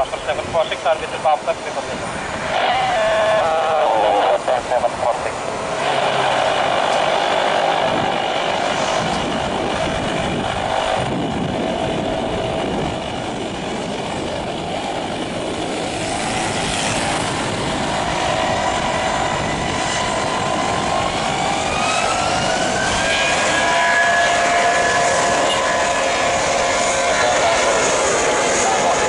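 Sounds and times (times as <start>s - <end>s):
jet engines roaring and whining: 0.0s - 29.0s.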